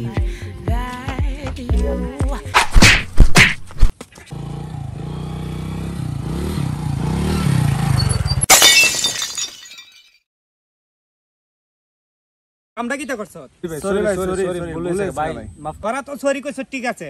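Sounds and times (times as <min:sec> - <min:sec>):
motorcycle engine revving: 0:04.2 - 0:08.4
crash with glass shattering: 0:08.2 - 0:10.3.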